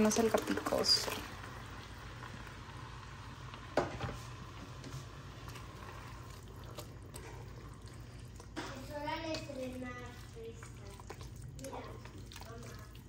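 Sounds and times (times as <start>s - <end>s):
low steady hum: 0.0s - 13.0s
spatula squishing and scraping: 4.8s - 13.0s.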